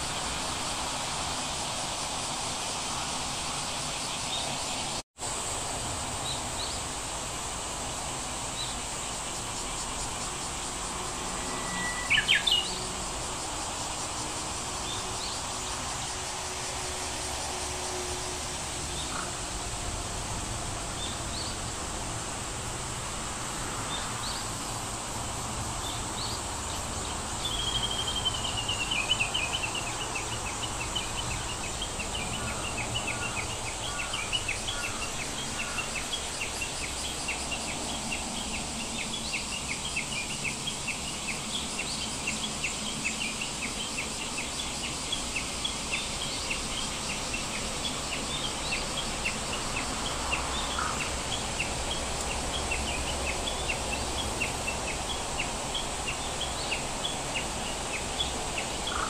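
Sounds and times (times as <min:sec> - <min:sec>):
steady hiss: 0:00.0 - 0:59.0
birds chirping: 0:11.0 - 0:12.9, 0:27.1 - 0:59.0.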